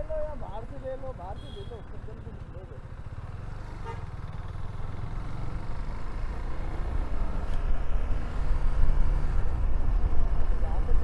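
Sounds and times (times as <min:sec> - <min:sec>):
motorcycle engine pulling away: 0:03.0 - 0:07.5.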